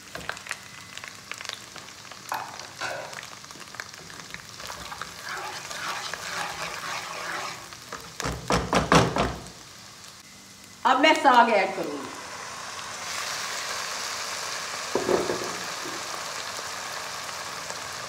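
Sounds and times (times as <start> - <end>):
spices sizzling in hot oil: 0.0 - 18.0
spatula scraping a pan: 4.6 - 8.1.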